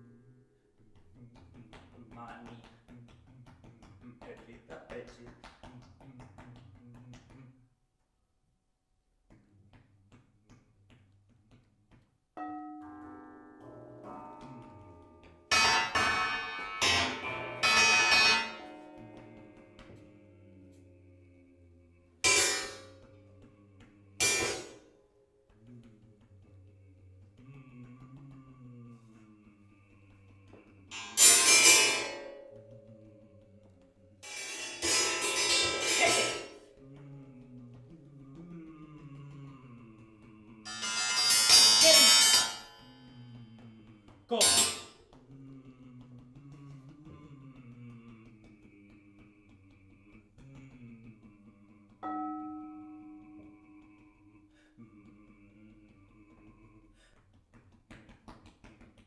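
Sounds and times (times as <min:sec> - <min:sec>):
metal springs ringing when struck: 0:15.5 - 0:19.2, 0:22.3 - 0:22.9, 0:24.2 - 0:24.8, 0:30.9 - 0:32.7, 0:34.2 - 0:36.6, 0:40.7 - 0:43.1, 0:44.3 - 0:44.9
dense metallic ringing: 0:15.5 - 0:19.8, 0:22.3 - 0:23.0.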